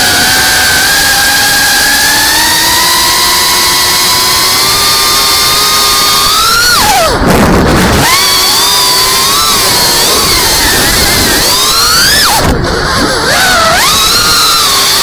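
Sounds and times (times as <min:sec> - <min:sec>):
quadcopter motors whining: 0:00.0 - 0:15.0
rushing air: 0:05.9 - 0:15.0.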